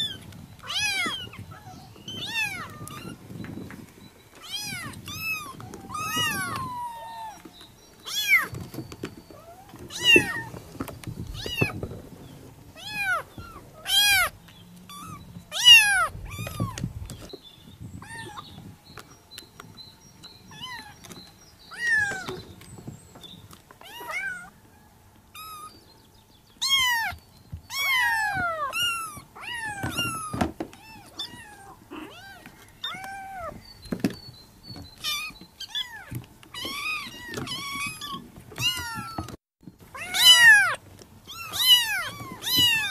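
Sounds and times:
kittens mewing: 0:00.0 - 0:03.3, 0:04.4 - 0:07.5, 0:09.4 - 0:10.6, 0:12.8 - 0:16.9, 0:26.6 - 0:33.6, 0:35.0 - 0:42.9.

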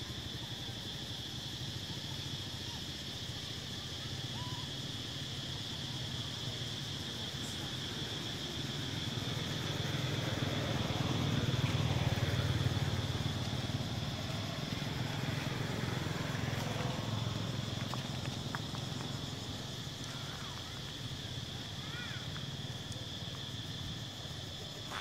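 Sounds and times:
passing vehicle engine rumble: 0:07.3 - 0:25.0.

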